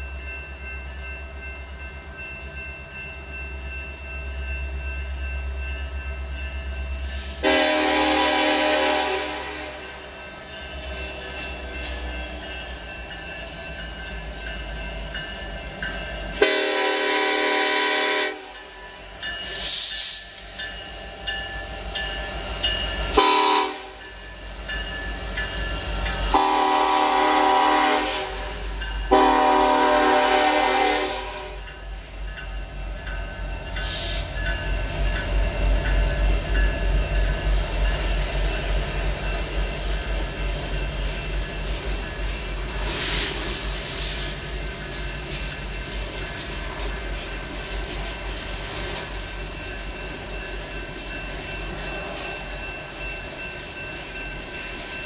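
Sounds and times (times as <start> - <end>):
train rumble: 0.0 - 55.0
locomotive horn blasts: 7.4 - 9.9, 16.4 - 18.6, 23.2 - 24.0, 26.3 - 31.6.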